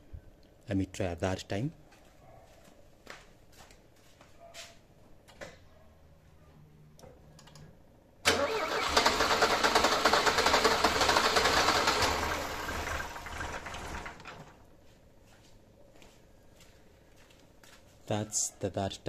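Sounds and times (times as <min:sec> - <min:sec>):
starter cranking engine: 0:08.3 - 0:14.5.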